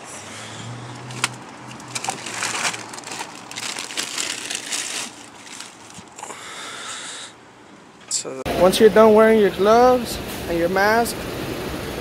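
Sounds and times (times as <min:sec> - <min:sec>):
plastic bags rustling: 0:00.9 - 0:06.3.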